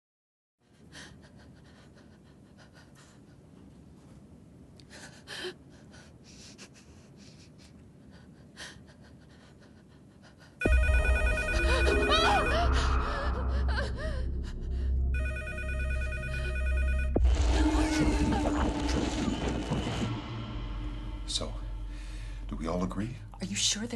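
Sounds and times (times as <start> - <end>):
telephone bell ringing: 10.7 - 12.8, 15.2 - 17.2
faint breaths: 21.5 - 22.5.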